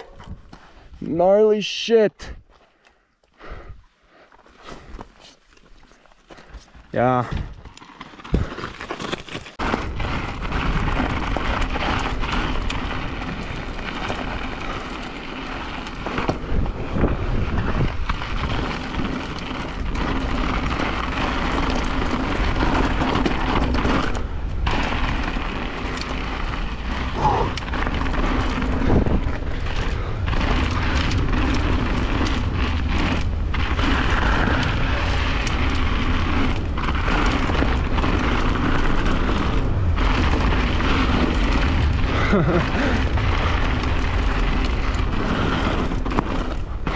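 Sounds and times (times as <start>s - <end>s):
bike tyres rumbling over rock: 4.4s - 46.9s
wind buffeting microphone: 9.6s - 46.9s.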